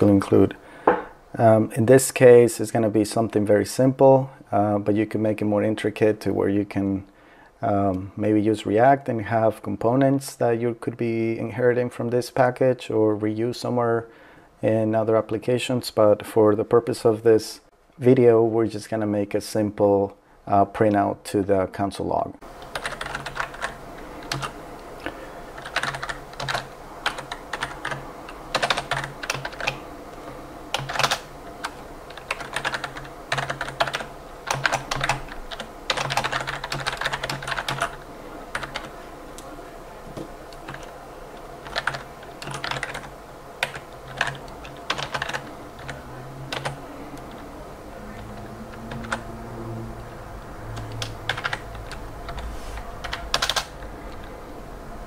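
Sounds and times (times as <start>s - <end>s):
keyboard typing clicks: 50.8s - 52.4s, 53.0s - 54.3s.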